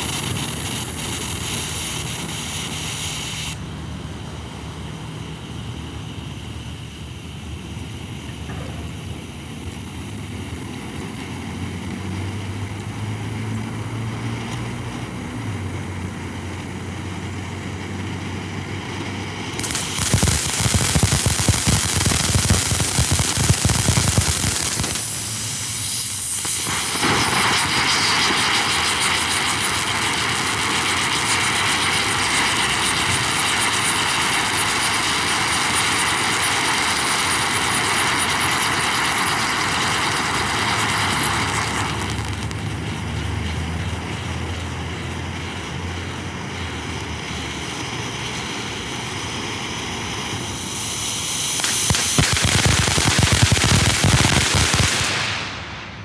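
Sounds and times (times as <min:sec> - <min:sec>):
firework crackling: 0:00.0 - 0:56.0
firework fountain hissing: 0:00.0 - 0:56.0.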